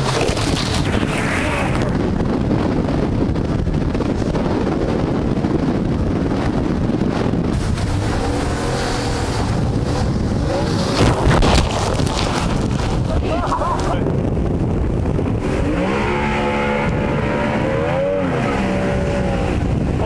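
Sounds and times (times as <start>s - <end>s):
outboard engine running: 0.0s - 20.0s
wind buffeting microphone: 0.0s - 20.0s
water rushing past hull: 7.5s - 20.0s.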